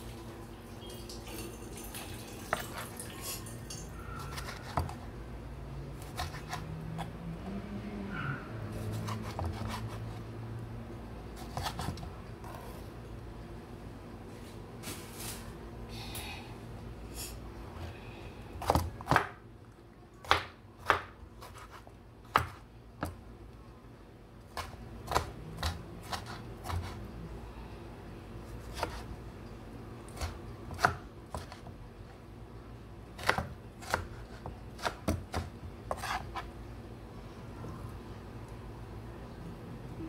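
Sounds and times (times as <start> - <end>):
knife chopping on wooden board: 6.0 - 6.6, 8.9 - 10.0, 20.2 - 23.2, 28.7 - 29.0, 33.2 - 36.5.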